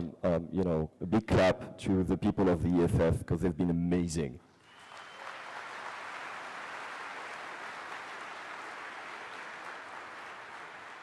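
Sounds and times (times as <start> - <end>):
large crowd applauding: 4.6 - 11.0.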